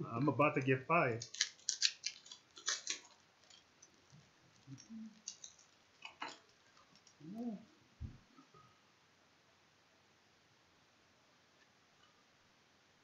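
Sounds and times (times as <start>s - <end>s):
trading cards clicking and rustling: 1.2s - 7.2s
person humming: 7.2s - 7.7s.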